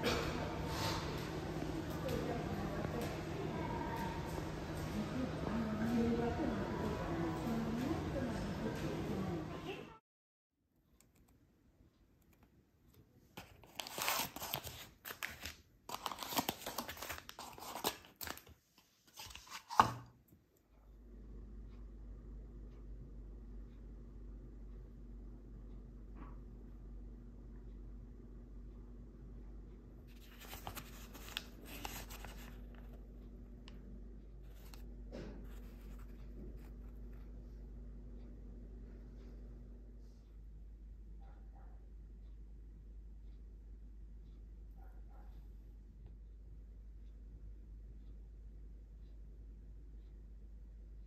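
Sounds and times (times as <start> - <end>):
wrapper crinkling and crackling: 13.4 - 19.8, 30.2 - 32.8
paper and cardboard rustling: 13.4 - 20.0, 30.1 - 33.0.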